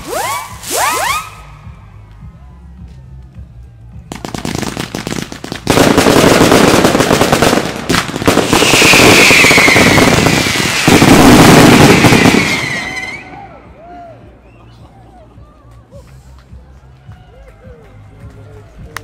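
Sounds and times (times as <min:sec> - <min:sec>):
fireworks crackling and banging: 0:00.0 - 0:01.4, 0:04.0 - 0:13.5
falling firework whistle: 0:00.0 - 0:01.6, 0:08.3 - 0:13.6.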